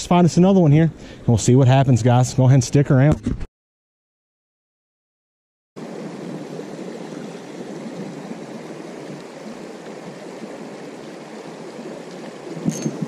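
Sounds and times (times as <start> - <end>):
creek water running: 5.8 - 13.0.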